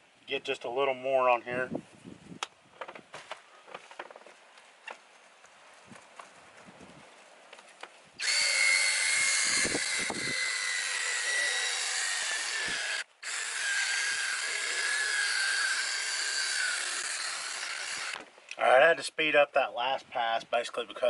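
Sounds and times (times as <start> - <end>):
cordless drill motor whining: 8.2 - 18.2.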